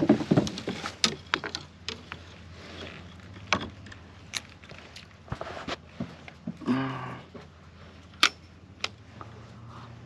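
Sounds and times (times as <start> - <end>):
fishing tackle clicks and knocks: 0.0 - 2.4, 3.0 - 5.2.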